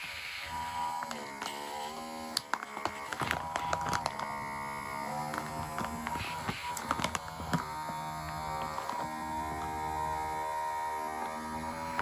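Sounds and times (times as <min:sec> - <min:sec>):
vacuum pump motor hum: 0:00.0 - 0:12.0
sharp clicks and crackles: 0:02.3 - 0:04.4, 0:05.1 - 0:09.8.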